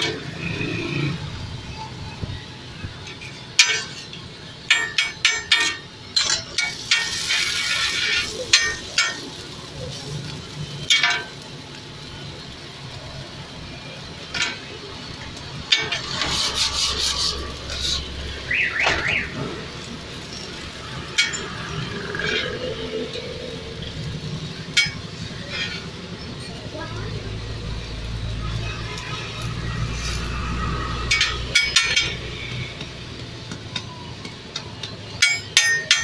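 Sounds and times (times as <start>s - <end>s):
metal spatula scraping griddle: 3.2s - 11.4s, 15.6s - 26.6s, 28.3s - 32.8s.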